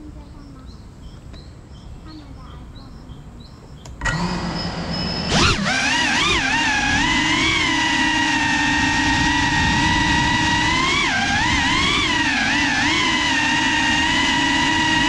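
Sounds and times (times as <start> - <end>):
drone motors whining: 3.8 - 15.0.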